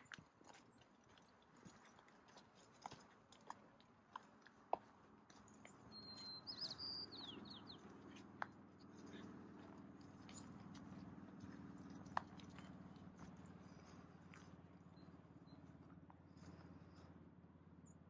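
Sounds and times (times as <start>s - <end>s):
footsteps crunching on dirt: 0.0s - 14.6s
bird chirping: 5.4s - 17.0s.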